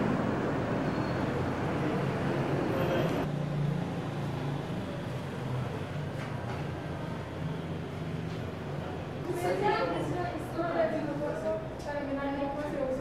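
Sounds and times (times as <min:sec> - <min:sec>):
street traffic rumbling hiss: 0:00.0 - 0:09.4.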